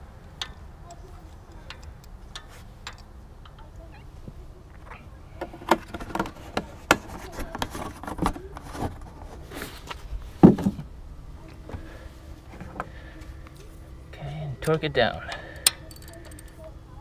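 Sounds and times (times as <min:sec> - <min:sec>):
plastic jug handling clicks and rustles: 0:05.4 - 0:09.3
loud thump: 0:10.4 - 0:10.9.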